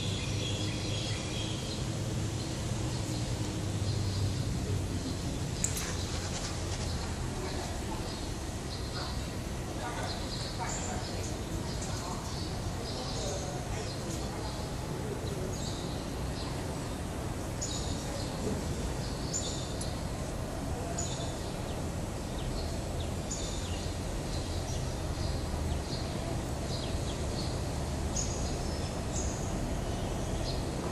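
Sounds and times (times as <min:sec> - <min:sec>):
small birds chirping: 0:00.0 - 0:30.9.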